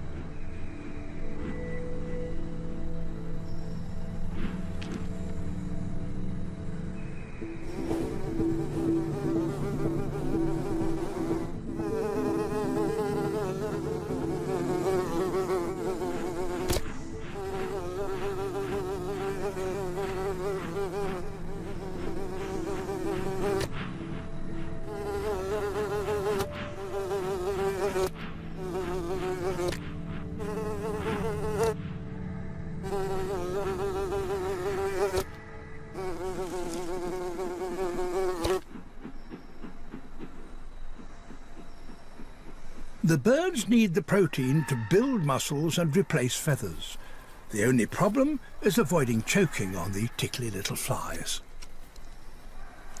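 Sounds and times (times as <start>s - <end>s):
small insects buzzing: 7.6s - 31.9s, 32.8s - 38.7s.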